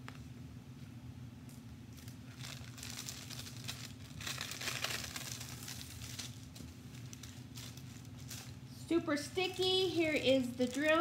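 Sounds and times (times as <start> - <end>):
plastic film crinkling: 1.9 - 8.8, 9.4 - 11.0.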